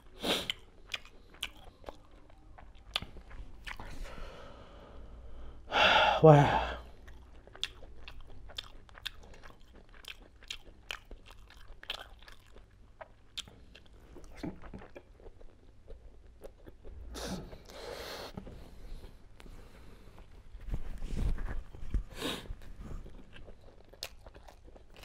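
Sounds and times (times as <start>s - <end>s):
person chewing with wet smacks: 0.0s - 4.1s, 6.9s - 18.5s, 21.8s - 25.0s.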